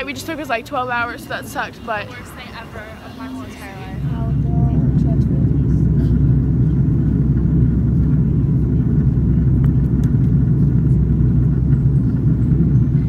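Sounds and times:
rushing air: 0.0s - 8.3s
jet engine rumble: 0.0s - 13.0s.

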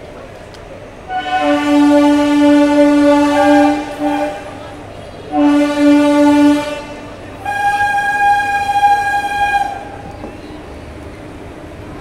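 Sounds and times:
train horn blasts: 1.1s - 10.0s.

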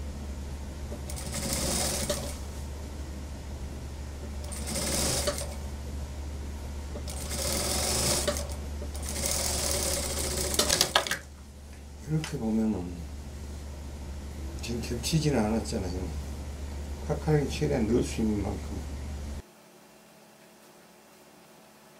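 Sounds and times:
steady low hum: 0.0s - 20.3s
sewing machine stitching: 0.9s - 2.4s, 4.3s - 5.6s, 7.0s - 11.2s.

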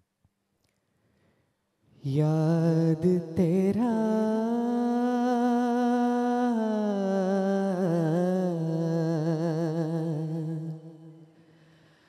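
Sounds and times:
man singing unaccompanied: 2.0s - 11.3s.

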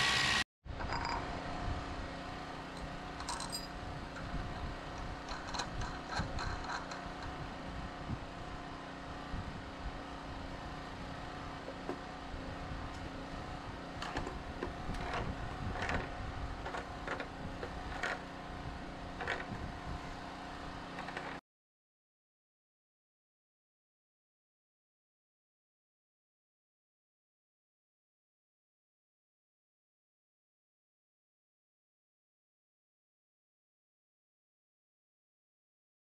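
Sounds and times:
engine-like hum: 0.0s - 21.4s
metal clinks of nut and wrench: 3.2s - 3.8s.

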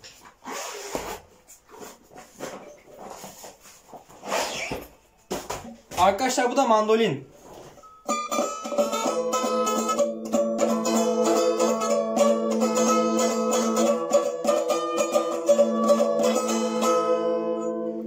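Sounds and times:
mandolin tremolo melody: 8.0s - 18.0s.

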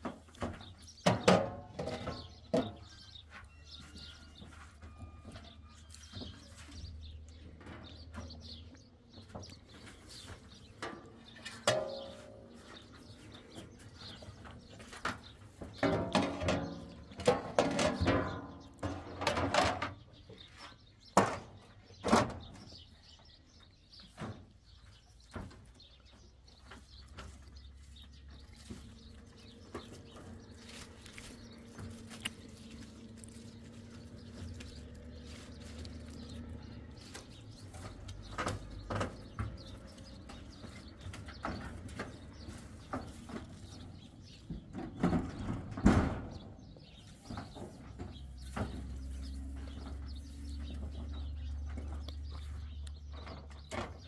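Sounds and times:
metal trays clanking and rattling: 0.0s - 3.2s, 9.2s - 20.4s, 21.0s - 22.8s, 28.0s - 54.0s
footsteps on metal roof sheeting: 0.0s - 54.0s.

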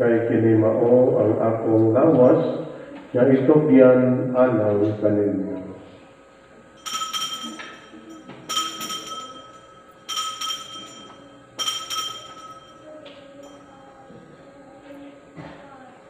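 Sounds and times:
altar bells jangling: 6.8s - 14.0s.

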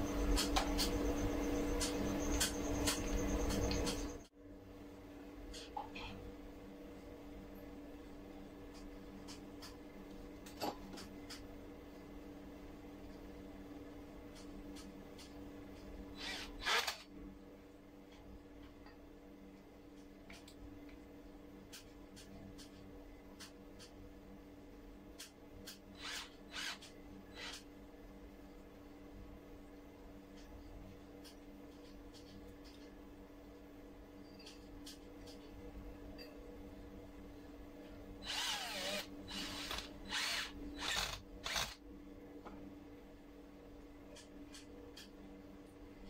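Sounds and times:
faint steady hum: 0.0s - 46.0s
cordless drill whirring: 16.2s - 17.0s, 26.0s - 26.8s, 38.2s - 41.8s.

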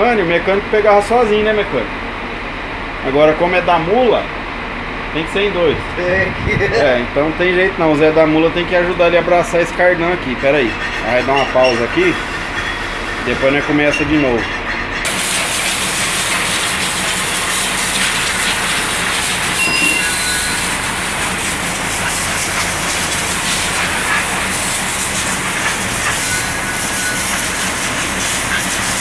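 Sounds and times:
pressure washer spraying water: 15.1s - 29.0s.

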